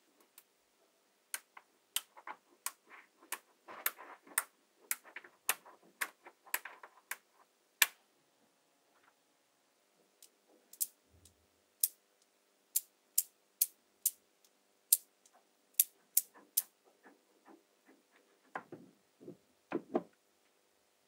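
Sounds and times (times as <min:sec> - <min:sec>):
magnetic balls clicking: 0:01.3 - 0:08.0, 0:10.2 - 0:12.0, 0:12.7 - 0:17.6
dull knocks: 0:18.5 - 0:20.1.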